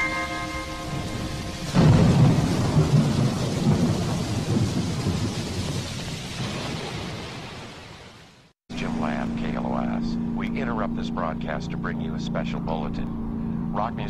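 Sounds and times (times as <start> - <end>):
held musical chord: 0.0 - 2.9
steady rain: 0.0 - 9.8
thunder clap and rumble: 0.8 - 10.6.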